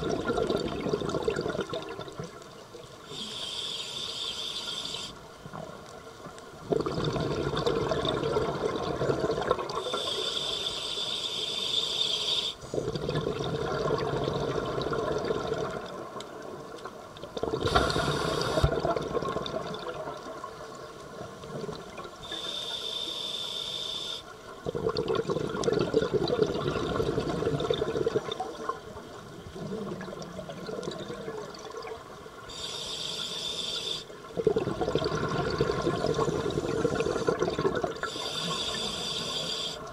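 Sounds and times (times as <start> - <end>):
regulator inhalation hiss: 3.1 - 5.2, 9.8 - 12.7, 17.7 - 18.7, 22.2 - 24.3, 32.5 - 34.1, 38.1 - 39.9
bubbly exhaled air rush: 34.4 - 39.7.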